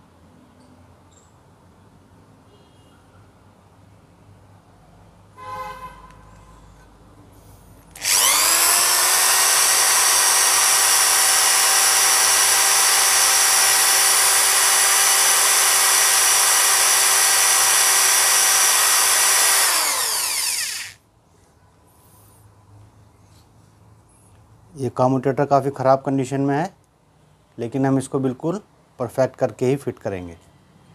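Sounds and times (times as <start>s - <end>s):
electric drill spinning: 7.9s - 21.0s.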